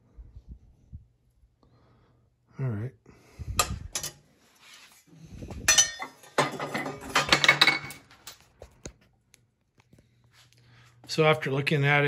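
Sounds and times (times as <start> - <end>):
metal parts clinking and rattling: 5.6 - 8.5.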